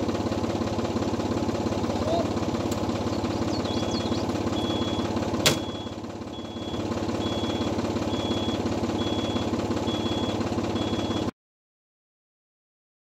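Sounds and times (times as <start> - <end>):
tractor engine idling: 0.0 - 11.3
electronic beeps: 3.7 - 11.2.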